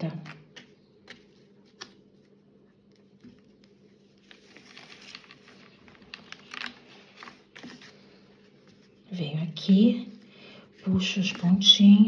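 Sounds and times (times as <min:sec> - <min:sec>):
cord rustling by hand: 0:00.6 - 0:09.1.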